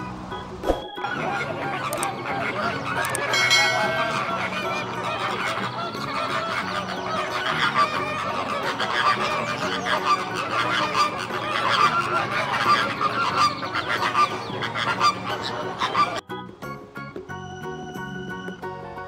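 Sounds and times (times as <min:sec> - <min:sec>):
flamingos honking: 0:00.0 - 0:16.2.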